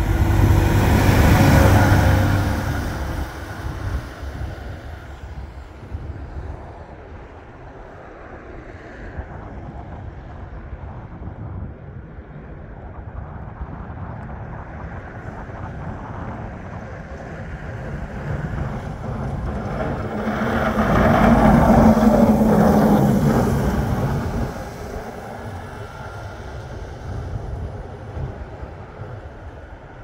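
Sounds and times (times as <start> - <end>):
plough blade pushing snow: 0.0 - 4.7, 18.4 - 26.5
tractor diesel engine under load: 0.0 - 6.1, 17.7 - 30.0.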